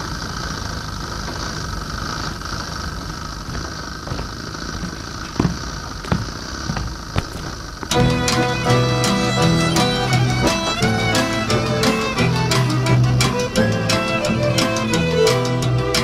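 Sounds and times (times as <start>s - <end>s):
droning background hum: 0.0s - 16.0s
footsteps on wooden floor: 3.5s - 13.7s.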